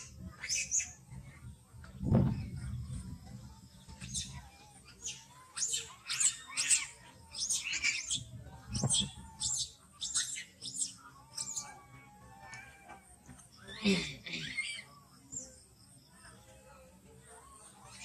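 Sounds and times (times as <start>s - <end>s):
small animal chirps and squeaks: 0.0s - 15.6s, 17.4s - 18.0s.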